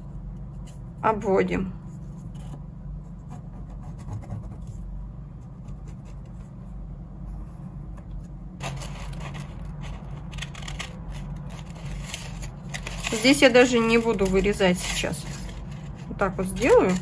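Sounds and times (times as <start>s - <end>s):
steady low hum: 0.0s - 17.0s
pen scratching on paper: 3.1s - 4.8s
paper rustling: 8.6s - 17.0s.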